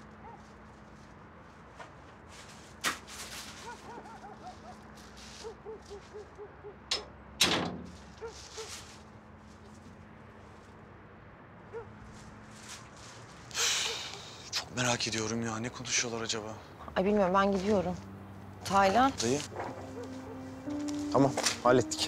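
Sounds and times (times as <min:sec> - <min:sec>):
low steady hum: 0:16.6 - 0:22.0
light footsteps: 0:16.8 - 0:22.0.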